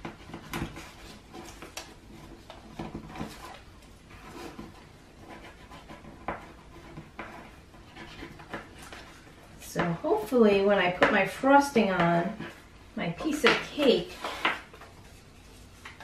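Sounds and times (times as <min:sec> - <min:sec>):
paper rustling as it's creased: 0:00.1 - 0:09.4, 0:13.8 - 0:16.0.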